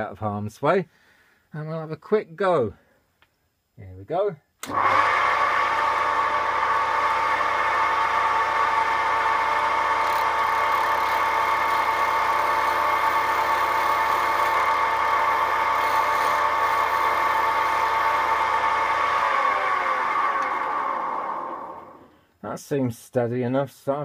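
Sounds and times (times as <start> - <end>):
wood lathe humming: 4.6 - 22.1.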